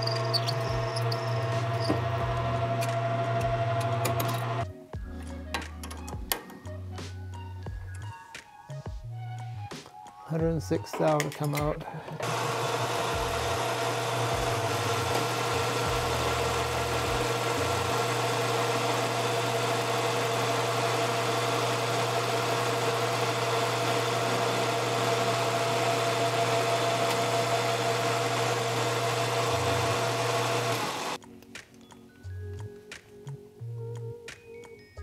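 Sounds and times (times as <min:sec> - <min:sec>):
lathe cutting metal: 0:00.0 - 0:04.6, 0:12.2 - 0:31.2
metal lathe motor hum and whine: 0:00.0 - 0:04.6, 0:12.2 - 0:31.2.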